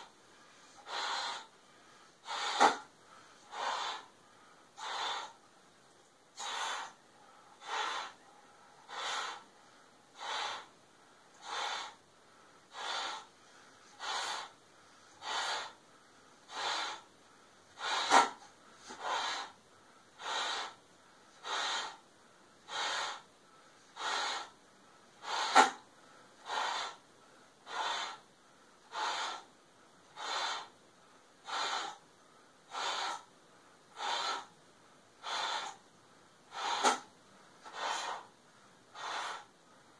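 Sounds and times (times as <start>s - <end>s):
man blowing breaths: 0.0s - 5.4s, 6.3s - 22.0s, 25.2s - 28.2s, 36.5s - 38.3s.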